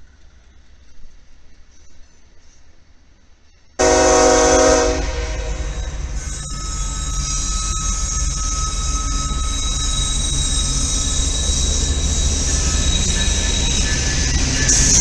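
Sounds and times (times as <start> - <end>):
locomotive and wheels rumbling: 0.0 - 15.0
locomotive horn blast: 3.8 - 6.2
thin high whine: 3.8 - 15.0.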